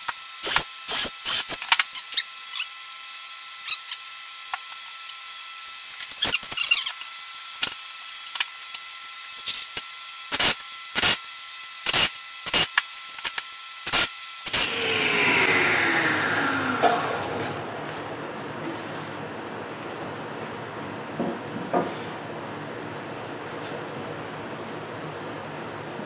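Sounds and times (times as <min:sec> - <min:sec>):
noisy falling whine: 0:14.5 - 0:19.7
faint hum: 0:14.5 - 0:21.2.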